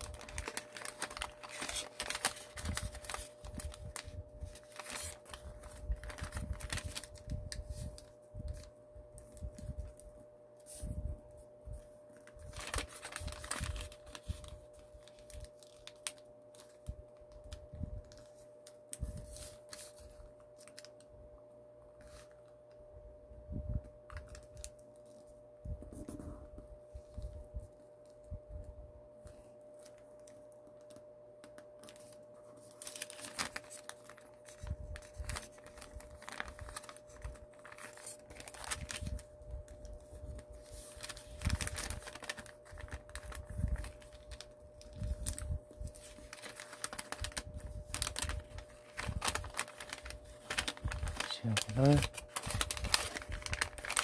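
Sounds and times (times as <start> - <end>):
paper being folded and creased: 0.0 - 10.0, 12.2 - 16.9, 29.8 - 54.0
faint steady hum: 0.0 - 54.0.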